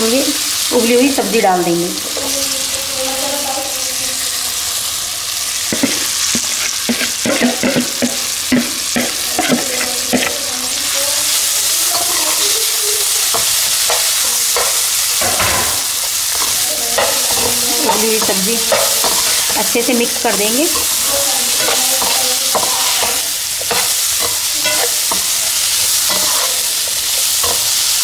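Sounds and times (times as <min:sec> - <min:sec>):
sauce sizzling in hot oil: 0:00.0 - 0:28.0
metal spoon scraping a pan: 0:05.7 - 0:28.0.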